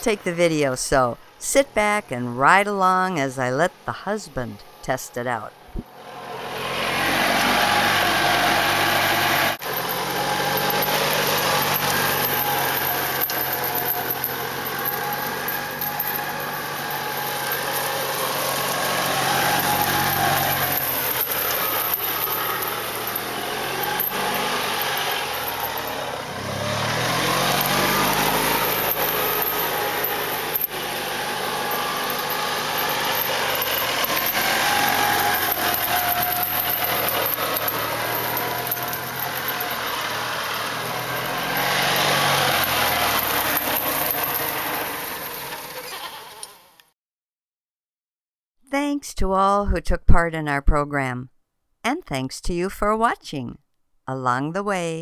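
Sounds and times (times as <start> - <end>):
chain drag rushing noise: 5.8 - 46.7
small engine running: 5.8 - 46.9.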